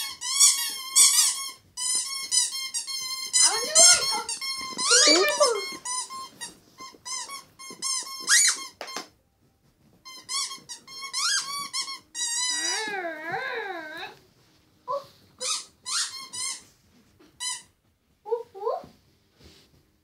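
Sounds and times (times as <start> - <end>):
squeaky dog toys squeaking: 0.0 - 9.1, 10.0 - 14.2, 14.9 - 16.7, 17.4 - 17.7.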